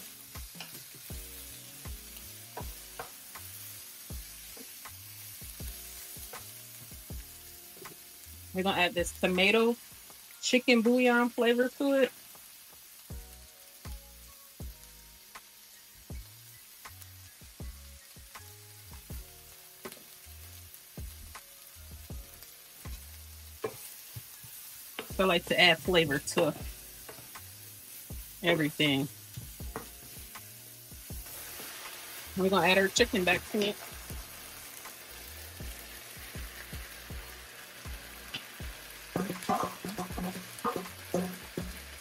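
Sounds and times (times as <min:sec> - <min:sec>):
background music: 0:00.0 - 0:42.0
vegetables sizzling in skillet: 0:00.0 - 0:42.0
wooden spatula scraping skillet: 0:23.6 - 0:30.3, 0:31.2 - 0:36.7, 0:39.1 - 0:42.0
wooden spoon knocking against pan: 0:29.6 - 0:30.1, 0:39.2 - 0:41.9.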